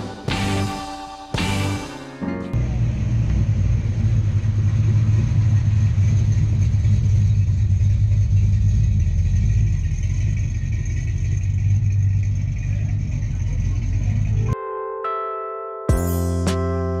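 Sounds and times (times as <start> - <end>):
car engine rumbling past: 2.6 - 14.5.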